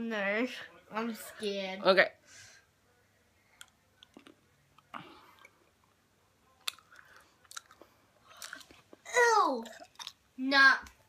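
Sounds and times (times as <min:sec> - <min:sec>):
mouth chewing clicks and smacks: 0:06.6 - 0:08.9.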